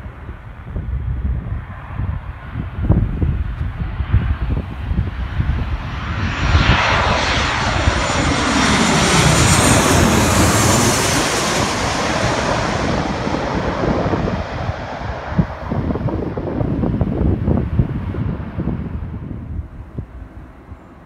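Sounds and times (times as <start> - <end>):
jet airliner passing overhead: 0.0 - 21.0
wind rumble on microphone: 0.0 - 21.0.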